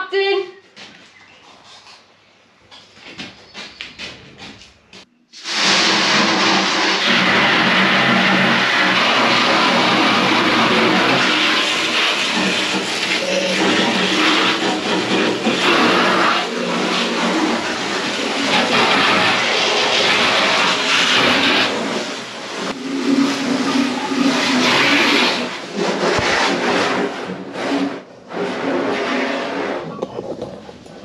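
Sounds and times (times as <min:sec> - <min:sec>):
hose spray hitting boat cabin: 0:05.4 - 0:30.3.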